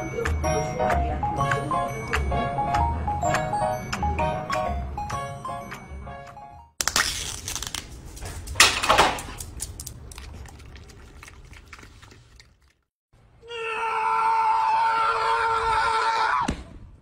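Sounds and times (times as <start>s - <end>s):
plinking music melody: 0.0s - 6.8s
plastic cup crinkling: 6.8s - 8.2s.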